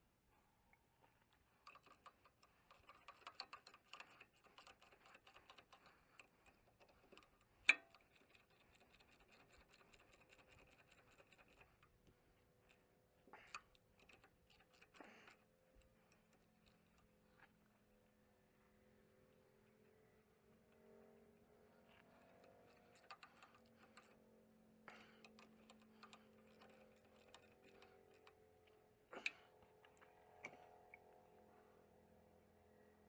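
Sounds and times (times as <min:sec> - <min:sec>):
wrench clicking on bolts: 0:01.6 - 0:11.8, 0:22.4 - 0:24.2, 0:24.9 - 0:28.4.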